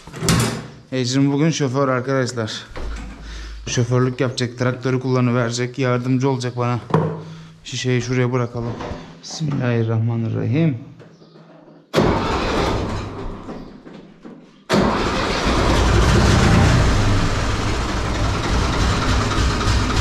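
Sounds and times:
diesel tractor engine starting: 12.0 - 13.6, 14.7 - 20.0.

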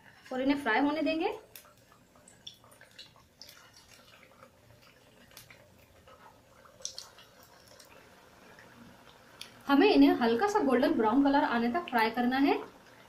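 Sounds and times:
oil popping and crackling: 0.0 - 9.8
hot oil sizzling: 0.0 - 13.0.

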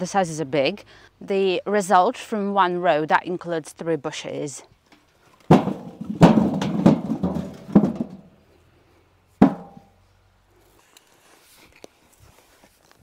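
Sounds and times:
potatoes thudding into metal wheelbarrow: 5.4 - 8.3, 9.4 - 9.9.

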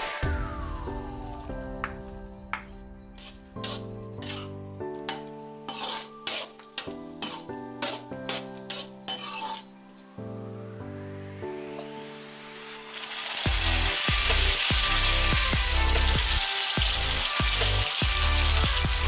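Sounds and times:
background music: 0.0 - 19.0
spatula scraping metal pan: 3.2 - 9.7.

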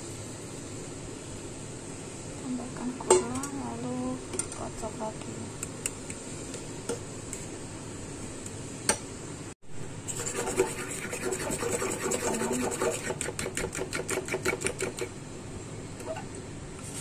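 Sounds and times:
fork whisking in a bowl: 10.0 - 15.2.

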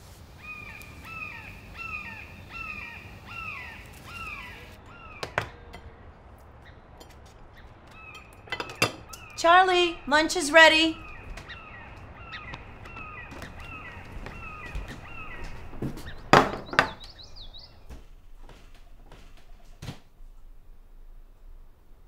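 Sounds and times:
bird chirping: 0.3 - 19.8
loud knocks: 12.5 - 17.2.

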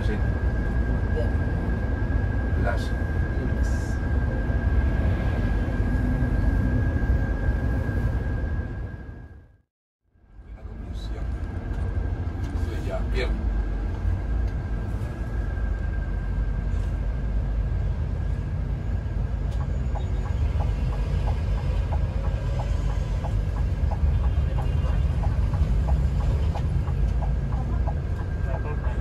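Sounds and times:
bus engine and road rumble: 0.0 - 9.6, 10.2 - 29.0
turn signal ticking: 19.5 - 29.0.

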